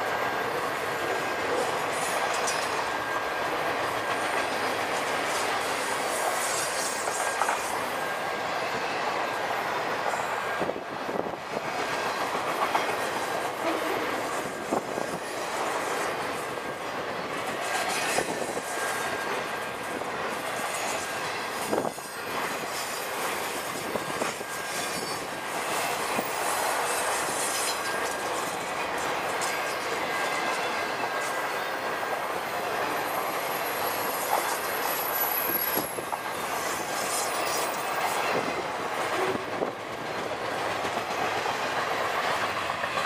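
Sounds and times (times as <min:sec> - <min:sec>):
freight train wheels rumbling on rail: 0:00.0 - 0:43.0
high wheel squeal: 0:13.6 - 0:39.4.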